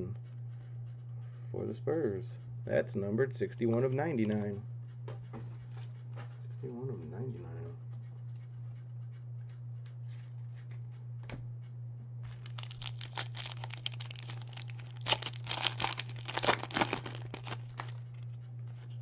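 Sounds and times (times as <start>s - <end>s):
low electrical hum: 0.0s - 19.0s
foil wrapper crinkling and ripping: 12.3s - 18.2s.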